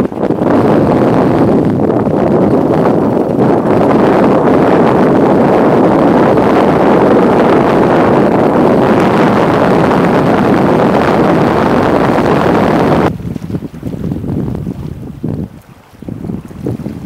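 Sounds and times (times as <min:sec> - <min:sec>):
choppy water rushing: 0:00.0 - 0:17.0
wind buffeting microphone: 0:00.0 - 0:17.0.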